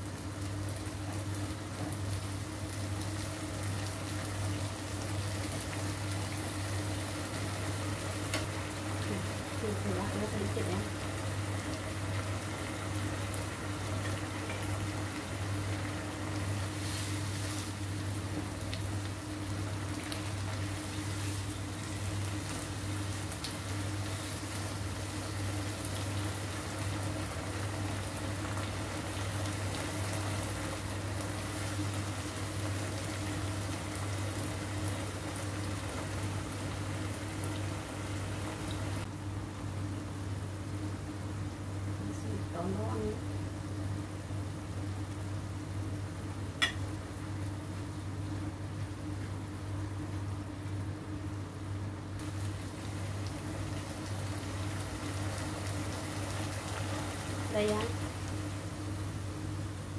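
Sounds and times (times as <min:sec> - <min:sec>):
sauce simmering and bubbling in a wok: 0:00.0 - 0:42.0, 0:43.2 - 0:59.9.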